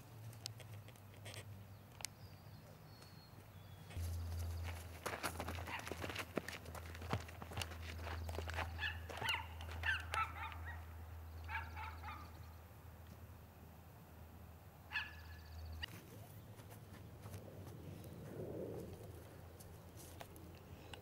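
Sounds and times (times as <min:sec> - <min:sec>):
footsteps and scuffling on grass: 0:03.9 - 0:10.7, 0:15.9 - 0:20.5.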